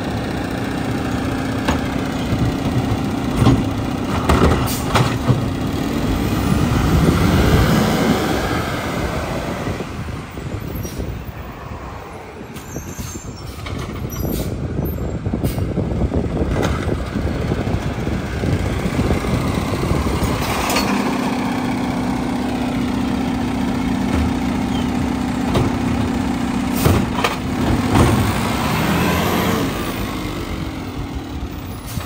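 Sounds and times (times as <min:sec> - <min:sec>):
truck engine and hydraulics humming: 0:00.0 - 0:32.0.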